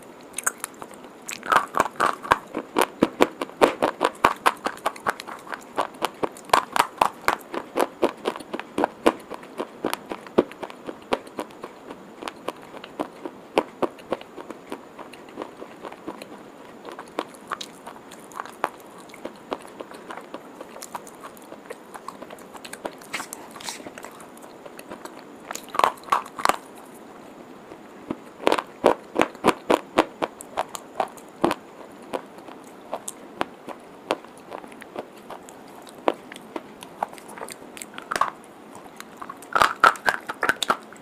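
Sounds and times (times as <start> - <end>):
person crunching chalk: 0.4 - 11.5, 16.9 - 24.3.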